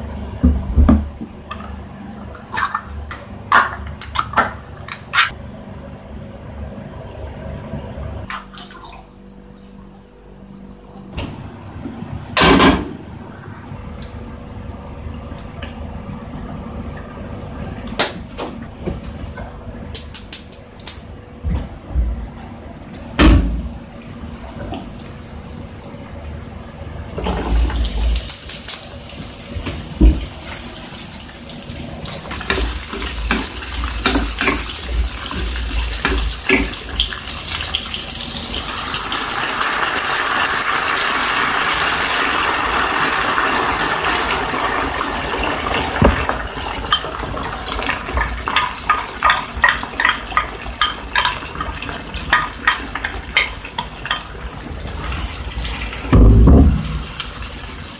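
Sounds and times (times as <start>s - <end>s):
vegetables sizzling in oil: 27.6s - 57.9s
water poured into hot pan bubbling: 32.2s - 57.9s.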